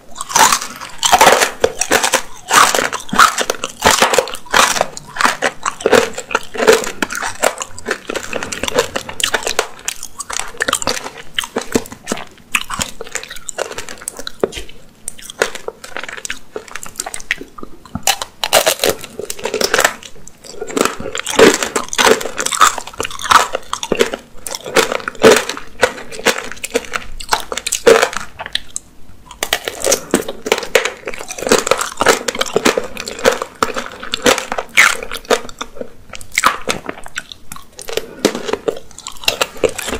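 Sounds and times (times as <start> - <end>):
chewing soft fruit: 0.0 - 39.9.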